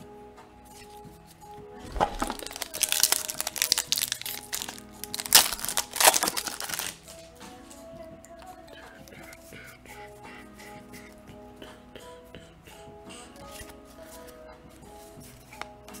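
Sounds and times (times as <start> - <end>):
quiet background music: 0.0 - 16.0
foil wrapper crinkling: 1.8 - 7.2.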